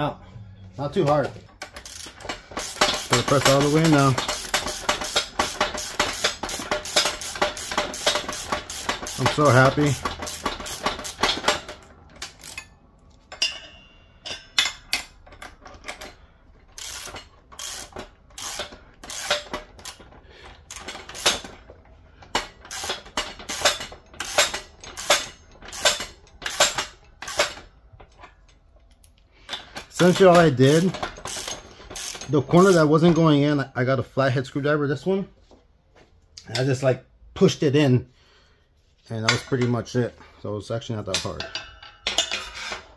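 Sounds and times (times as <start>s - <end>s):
hand ratchet clicking: 1.6s - 12.8s, 14.9s - 21.6s, 22.3s - 27.6s, 28.9s - 33.0s.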